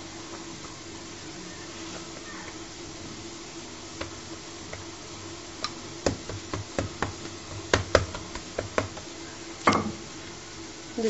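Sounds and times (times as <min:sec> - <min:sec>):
rolling pin knocking on countertop: 0:06.0 - 0:09.1.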